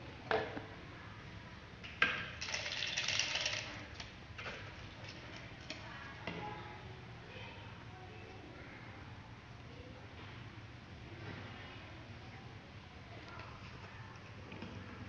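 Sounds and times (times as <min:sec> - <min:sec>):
paper slips rattling in plastic cup: 0:02.4 - 0:04.1.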